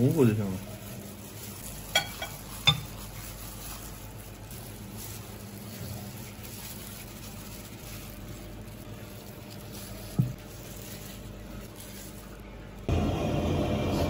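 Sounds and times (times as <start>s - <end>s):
soft handling of food: 0.0s - 12.9s
low electrical hum: 0.0s - 14.0s.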